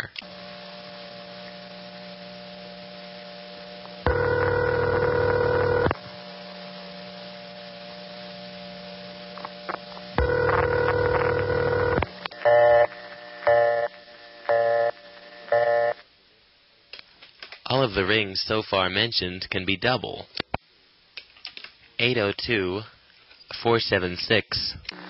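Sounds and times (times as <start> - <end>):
low line hum: 0.0 - 16.0
telephone ringback tone: 4.1 - 5.9, 10.2 - 16.0.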